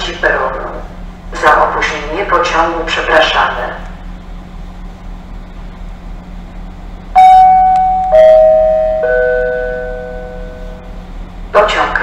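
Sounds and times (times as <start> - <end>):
descending public-address chime: 7.2 - 11.0.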